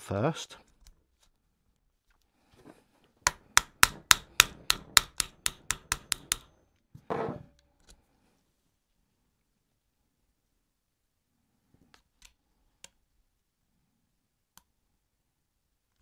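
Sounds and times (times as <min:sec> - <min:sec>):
small hammer tapping metal pin: 0:03.3 - 0:06.6.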